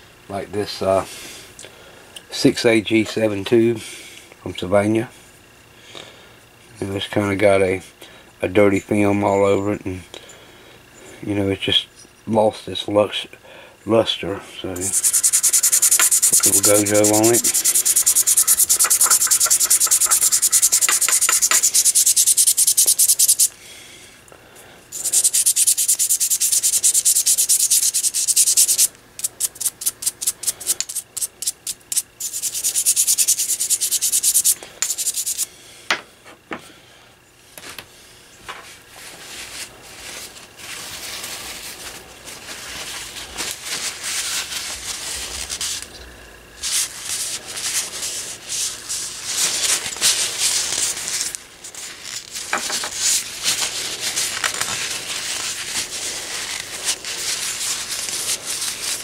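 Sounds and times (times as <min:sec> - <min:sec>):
toothbrush scrubbing metal tube: 0:14.8 - 0:23.5, 0:24.9 - 0:35.4.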